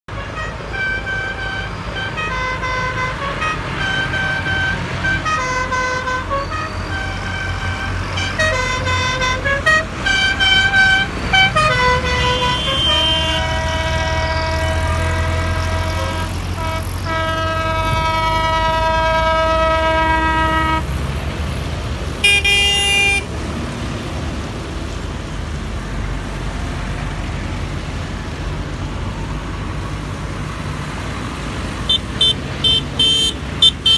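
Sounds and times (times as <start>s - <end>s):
horns honking: 0.1s - 21.0s, 22.2s - 23.3s, 31.8s - 33.9s
tractor engines rumbling: 0.1s - 33.9s.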